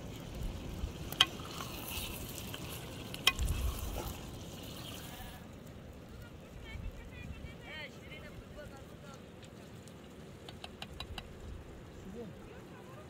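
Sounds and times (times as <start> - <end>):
stew sizzling in a metal pan: 0.0 - 5.6
ladle stirring stew: 0.9 - 5.2.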